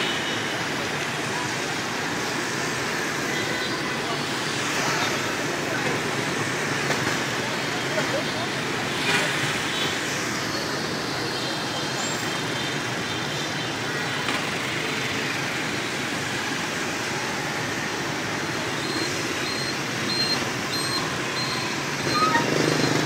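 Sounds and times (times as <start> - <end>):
motorbike traffic: 0.0 - 23.0
faint high beep: 18.8 - 23.0.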